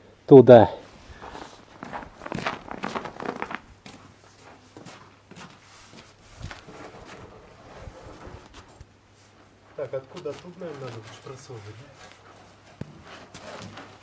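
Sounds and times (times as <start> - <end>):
footsteps crunching on snow: 0.9 - 14.0.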